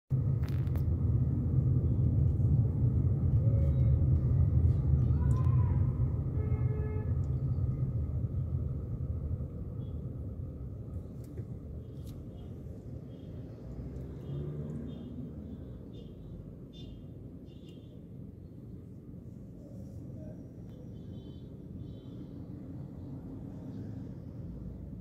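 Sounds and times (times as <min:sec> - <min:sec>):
car cabin road rumble: 0:00.1 - 0:06.4.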